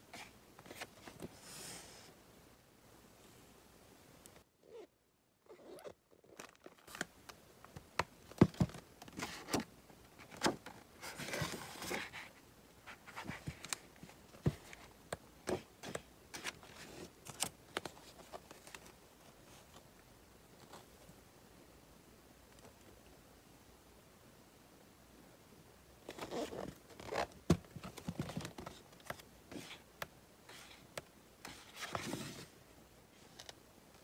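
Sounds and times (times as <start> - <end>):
paper sliding rustle: 30.5 - 32.5.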